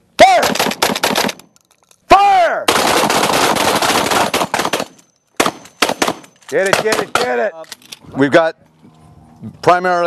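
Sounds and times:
gunshots: 0:00.2 - 0:01.5, 0:02.6 - 0:07.5
rapid continuous gunfire: 0:00.3 - 0:01.4, 0:02.7 - 0:07.3.

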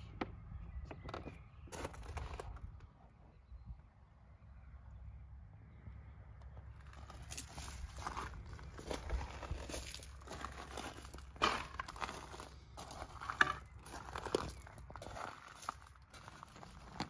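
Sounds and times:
footsteps on gravel: 0:06.8 - 0:17.0.

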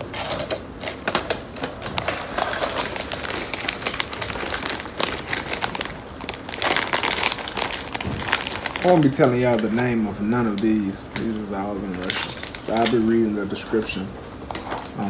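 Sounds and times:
plastic crisp bag crinkling: 0:00.0 - 0:15.0
hand rummaging in bag: 0:01.2 - 0:09.8.

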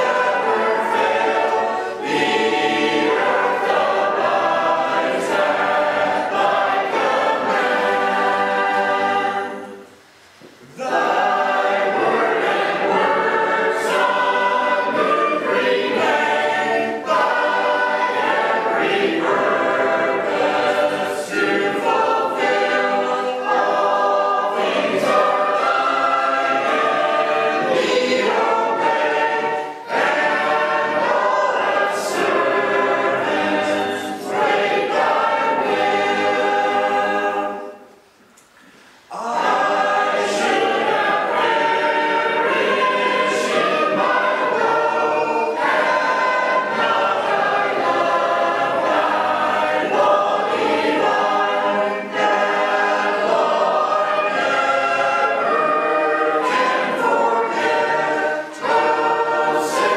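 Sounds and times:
choir singing in harmony: 0:00.0 - 0:59.9.

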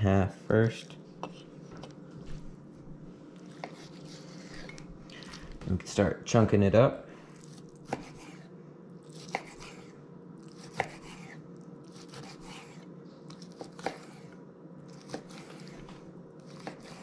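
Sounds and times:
knife slicing through fish: 0:03.5 - 0:04.8, 0:09.1 - 0:09.9, 0:10.5 - 0:14.3.

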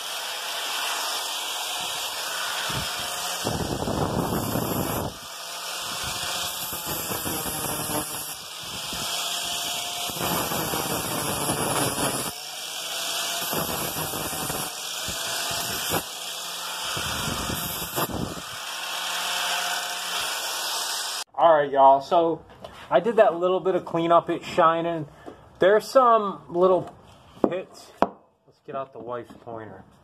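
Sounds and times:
angle grinder sanding metal: 0:00.0 - 0:21.3.

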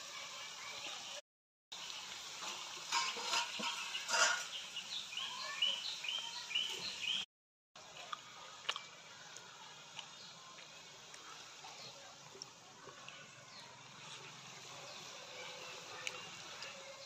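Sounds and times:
food sizzling in hot oil: 0:00.0 - 0:17.0
bird chirping: 0:03.8 - 0:07.2.

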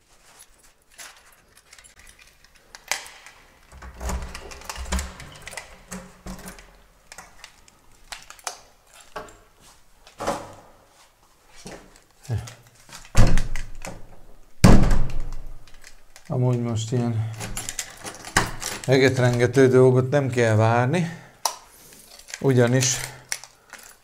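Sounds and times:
keys jangling in a lock: 0:00.3 - 0:09.5, 0:17.2 - 0:19.4, 0:22.0 - 0:24.0
door handle clicks and knocks: 0:03.7 - 0:06.8.

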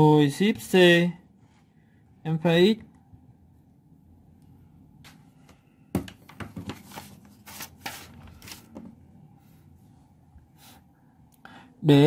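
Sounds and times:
paper rustling and scraping: 0:06.5 - 0:08.9.

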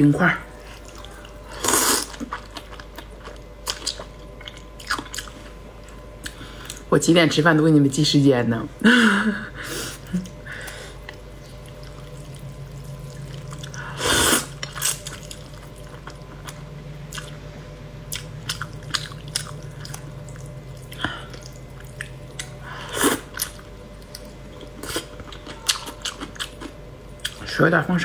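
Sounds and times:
slurping noodles: 0:13.7 - 0:15.0
wet mouth clicks and chewing: 0:18.1 - 0:22.6.

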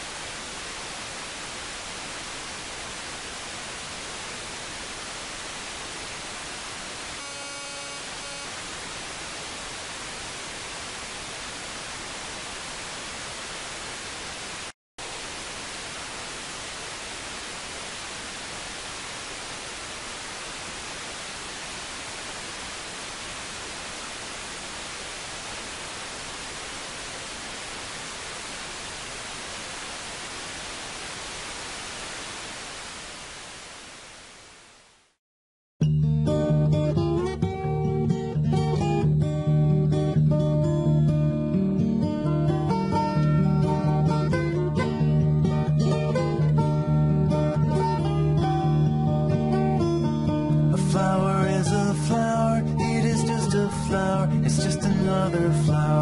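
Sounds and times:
radio hiss: 0:00.0 - 0:35.2.

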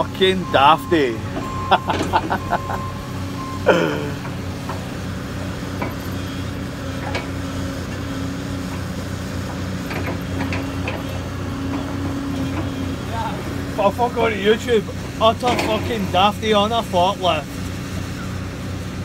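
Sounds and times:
diesel engine running: 0:00.0 - 0:19.0
short falling cry: 0:01.5 - 0:04.3.

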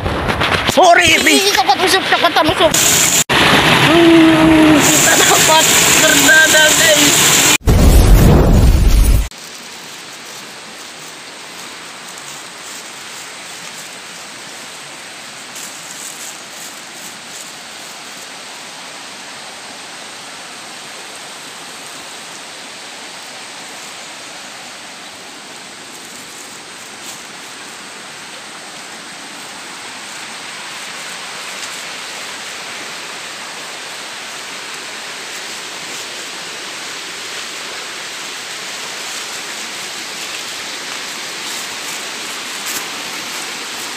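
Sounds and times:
rushing water: 0:00.0 - 0:43.9.

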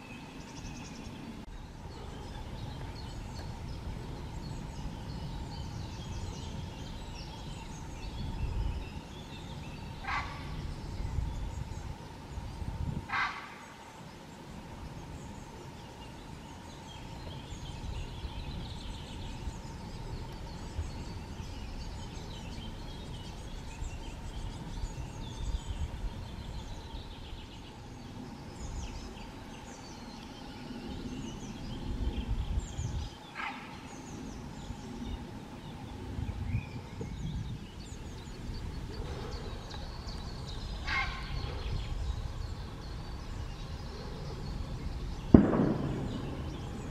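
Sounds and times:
faint steady hum: 0:00.0 - 0:46.9
songbirds chirping and whistling: 0:00.0 - 0:46.9.

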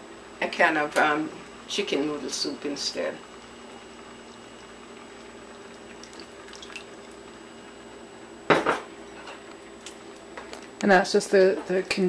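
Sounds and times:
faint wet drips: 0:04.2 - 0:07.2.

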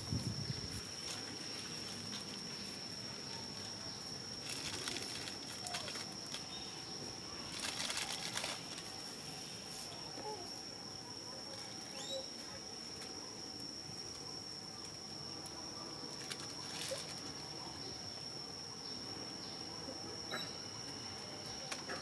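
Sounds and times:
dry leaves rustling: 0:00.0 - 0:10.0, 0:16.1 - 0:17.4
faint chirps: 0:00.0 - 0:22.0.

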